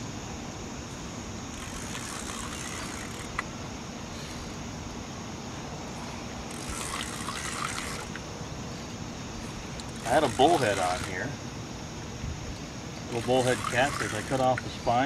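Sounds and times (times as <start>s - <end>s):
background hiss: 0.0s - 15.0s
fishing reel cranking: 1.5s - 3.4s, 6.5s - 8.2s, 9.8s - 11.3s, 13.1s - 14.6s.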